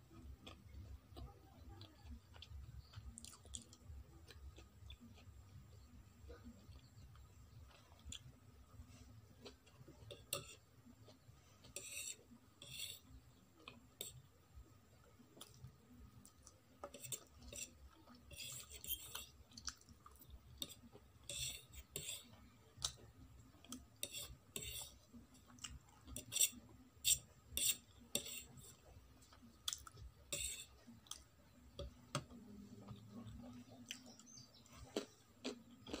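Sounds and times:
quiet chewing: 0.0 - 36.0
fork scraping a ceramic plate: 10.0 - 10.7, 11.6 - 13.2, 16.9 - 19.4, 20.6 - 22.4, 24.0 - 25.1, 26.1 - 28.8, 30.3 - 30.8.

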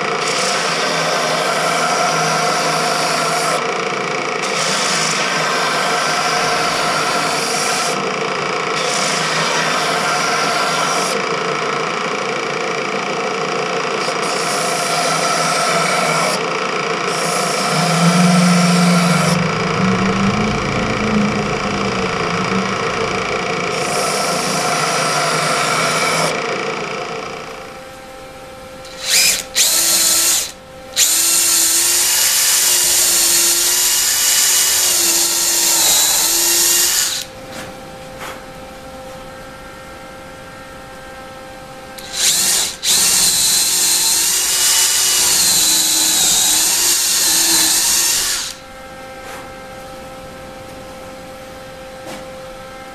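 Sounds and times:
belt sander running: 0.0 - 37.4, 42.0 - 48.7
power drill drilling into wood: 28.9 - 37.3, 42.0 - 48.6.

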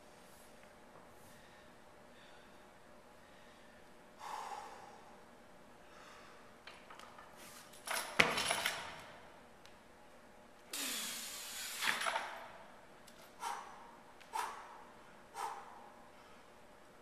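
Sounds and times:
person breathing sharply: 3.2 - 5.2, 5.8 - 6.5, 10.8 - 11.8, 13.4 - 16.5.

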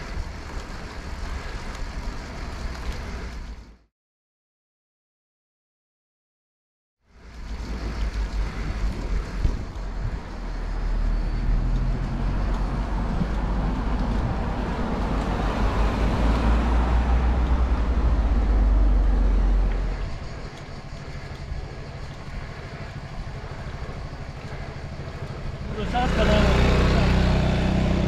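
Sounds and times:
vehicle engine running: 7.1 - 28.0
heavy low rumble: 7.2 - 28.0.

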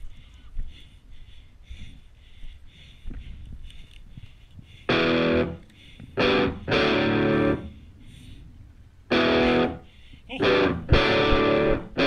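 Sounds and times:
electric guitar chord stabs: 4.9 - 5.6, 6.2 - 7.7, 9.1 - 9.8, 10.4 - 12.0.

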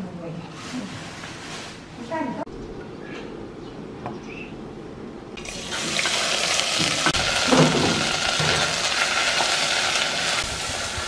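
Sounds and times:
paste sizzling in hot oil: 5.4 - 11.0.

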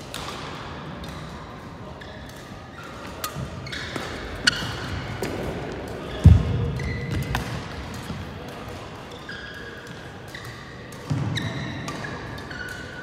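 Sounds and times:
shoes squeaking on court: 2.0 - 8.4, 9.1 - 13.0.

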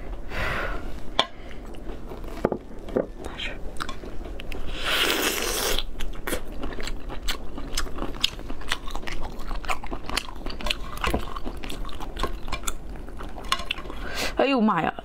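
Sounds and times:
lobster shell crunching: 5.2 - 14.1.

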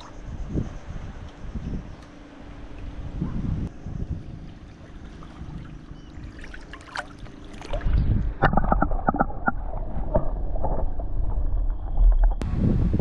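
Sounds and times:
muffled underwater rumble: 2.6 - 13.0
water lapping at camera: 4.1 - 11.0.

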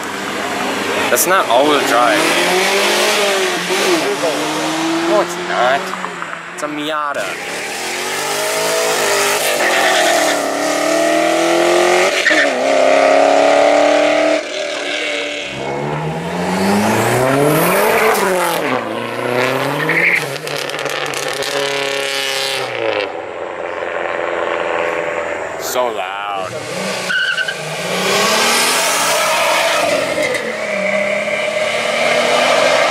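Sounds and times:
car engine accelerating hard: 0.0 - 32.9
car accelerating past: 7.2 - 25.6.

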